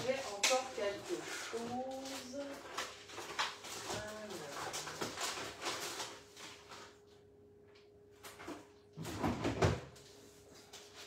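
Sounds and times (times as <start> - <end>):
knocks and clatters of objects: 0.0 - 7.0, 8.2 - 10.0
refrigerator hum: 0.0 - 11.0.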